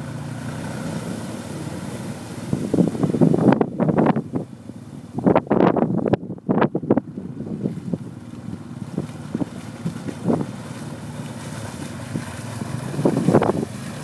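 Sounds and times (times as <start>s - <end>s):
vehicle engine running: 0.0s - 14.0s
water splashing around wheels: 0.0s - 14.0s
wind noise on microphone: 2.4s - 10.8s, 12.0s - 14.0s.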